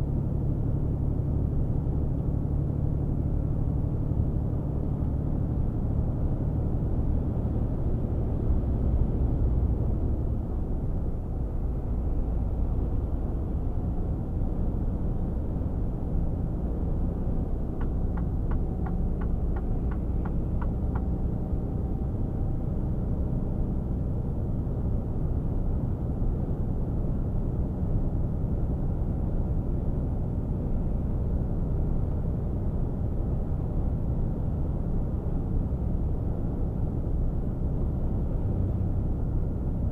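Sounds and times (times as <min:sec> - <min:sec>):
light ticks: 0:17.8 - 0:21.1.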